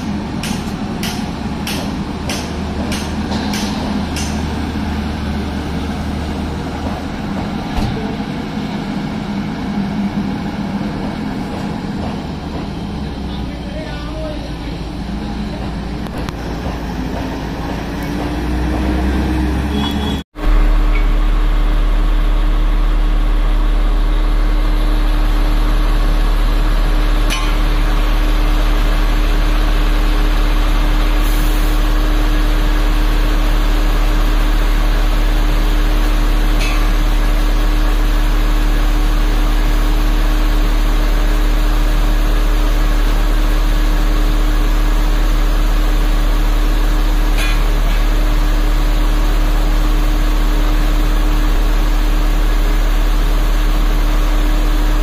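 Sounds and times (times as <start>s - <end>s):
diesel engine droning: 0.0s - 55.0s.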